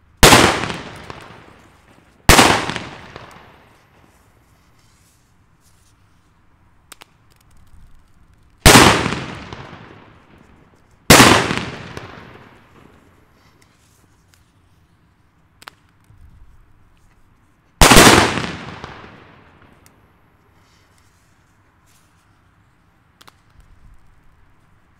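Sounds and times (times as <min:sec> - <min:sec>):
firecracker bangs echoing: 0:00.2 - 0:04.2, 0:08.6 - 0:10.4, 0:11.1 - 0:13.1, 0:17.8 - 0:19.8.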